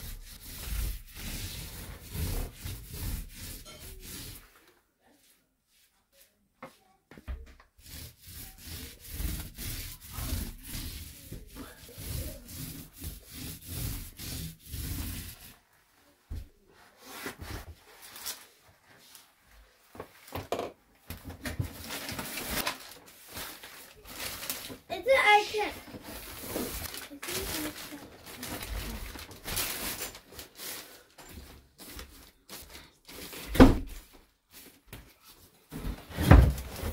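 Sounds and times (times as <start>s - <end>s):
paint roller rubbing: 0.0s - 6.0s, 7.8s - 15.7s, 23.2s - 34.8s.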